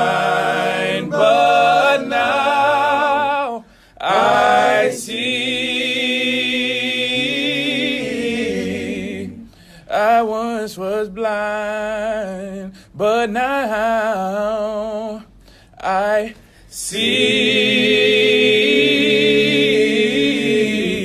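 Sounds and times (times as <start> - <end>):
man singing a cappella: 0.0 - 5.3, 9.8 - 17.3.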